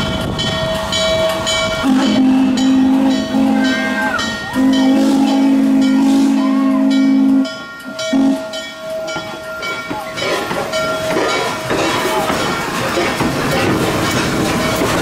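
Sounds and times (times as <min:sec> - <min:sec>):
locomotive running past: 0:00.0 - 0:15.0
steam locomotive whistle: 0:01.8 - 0:08.6.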